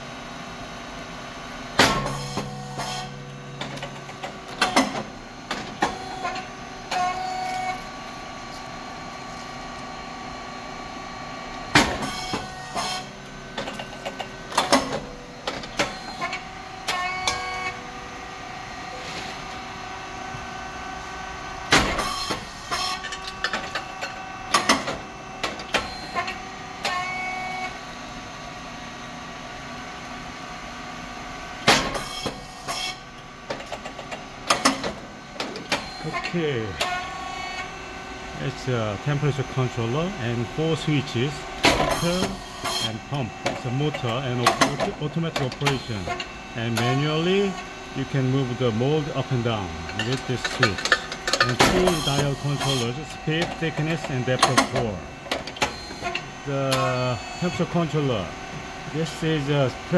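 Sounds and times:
steady machine hum: 0.0s - 59.9s
sharp pop of rice cake machine: 1.8s - 2.5s, 21.7s - 22.4s, 31.6s - 32.4s.

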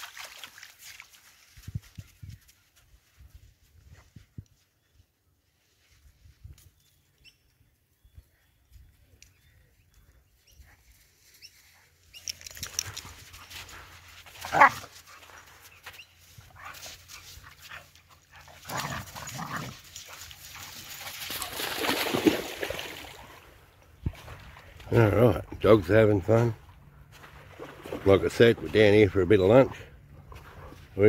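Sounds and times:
dogs playing and vocalising: 12.2s - 21.5s.

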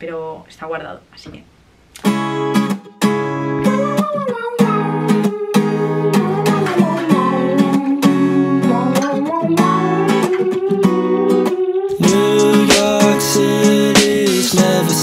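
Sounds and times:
strummed acoustic guitar: 2.0s - 15.0s
gliding melody line: 5.0s - 15.0s.

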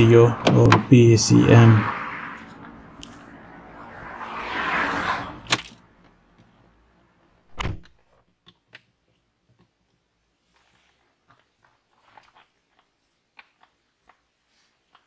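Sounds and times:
car door shutting: 0.4s - 1.0s, 7.5s - 7.9s.

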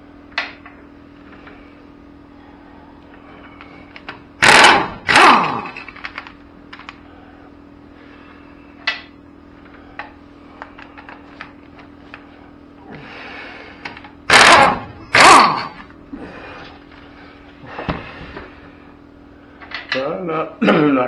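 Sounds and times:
pneumatic impact wrench bursts: 4.4s - 5.9s, 14.3s - 15.8s.

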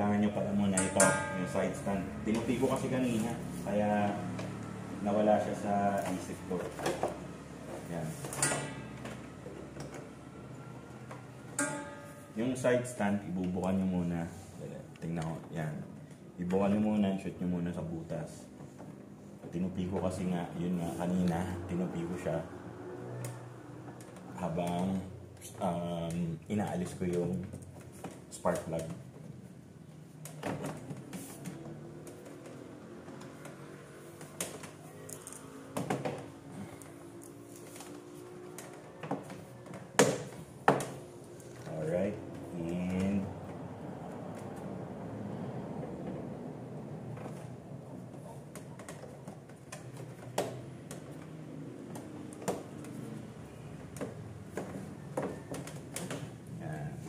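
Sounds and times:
scooter parts clicking and knocking: 0.4s - 2.6s, 47.1s - 56.6s.

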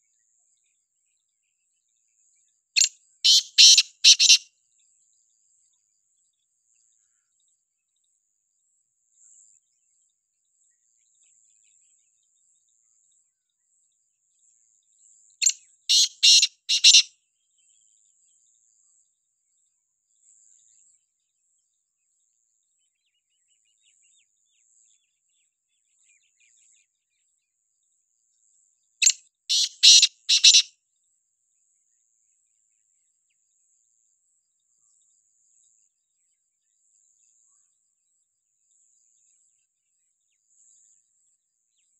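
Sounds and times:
bird calling: 3.3s - 4.4s, 15.9s - 17.1s, 29.5s - 30.7s.

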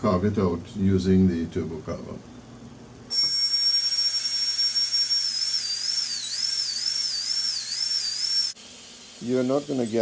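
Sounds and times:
air turbine carver whining: 3.1s - 10.0s.

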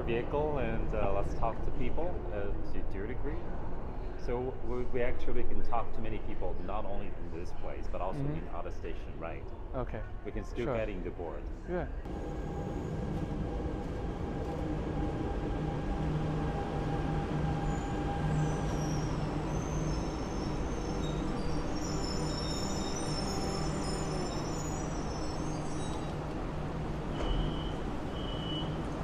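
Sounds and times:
train cars rumbling: 12.1s - 29.0s
thin high brake squeals: 17.6s - 26.3s, 27.1s - 28.9s.

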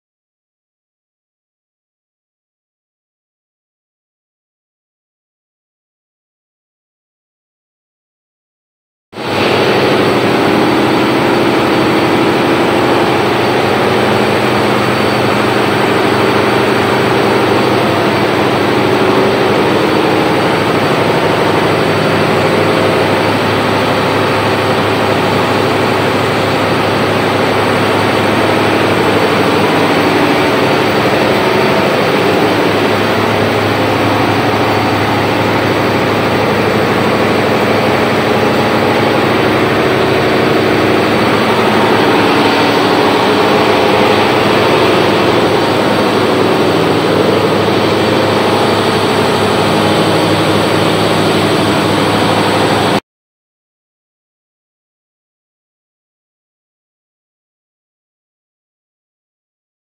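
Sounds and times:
diesel generator engine running: 9.2s - 53.0s.

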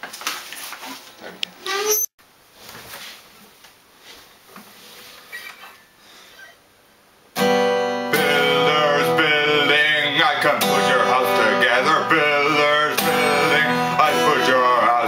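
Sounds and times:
acoustic guitar strumming: 7.3s - 15.0s
man singing: 8.1s - 15.0s.

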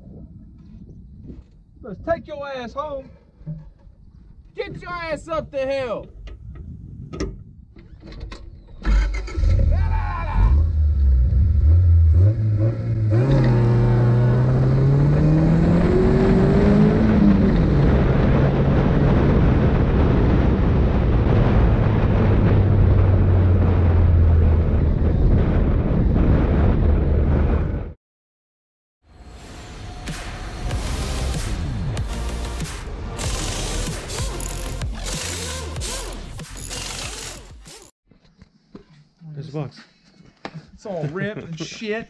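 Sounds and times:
wind and dirt-track noise: 0.0s - 28.0s
off-road buggy engine accelerating: 8.8s - 27.9s, 30.6s - 37.9s.

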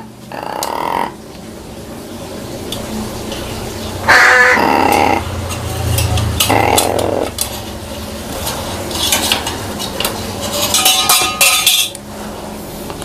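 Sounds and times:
crow harsh rasp: 4.0s - 5.3s.

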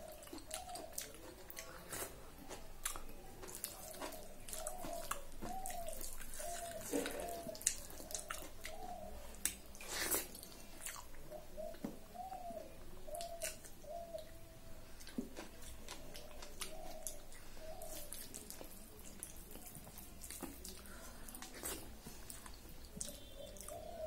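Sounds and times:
wet chewing and lip smacks: 0.0s - 11.9s, 13.1s - 14.4s, 15.0s - 23.8s
fingers squishing rice: 0.0s - 14.4s.

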